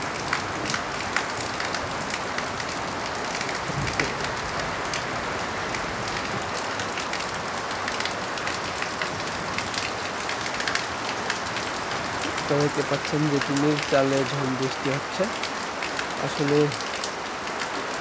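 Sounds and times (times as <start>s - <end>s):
rain on a tin roof: 0.0s - 18.0s.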